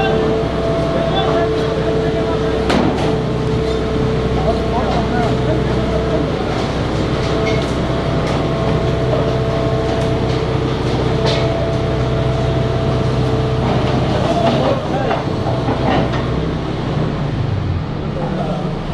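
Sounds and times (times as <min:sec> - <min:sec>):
faint voices talking: 0:00.0 - 0:10.0, 0:13.7 - 0:16.3
heavy machinery droning: 0:00.0 - 0:18.9.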